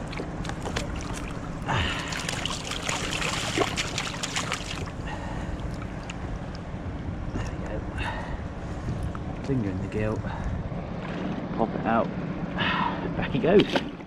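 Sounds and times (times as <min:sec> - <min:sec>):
fish splashing at surface: 0:00.0 - 0:06.2
low rumble of sea and wind: 0:00.0 - 0:14.0.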